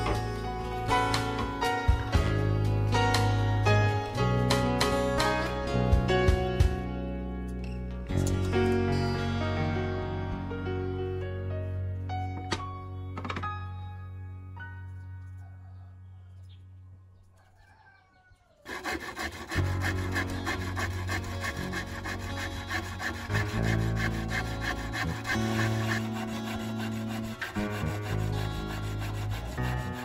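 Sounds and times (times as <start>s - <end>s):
soft background music: 0.0s - 16.8s, 19.0s - 30.0s
handsaw cutting wood: 18.6s - 30.0s.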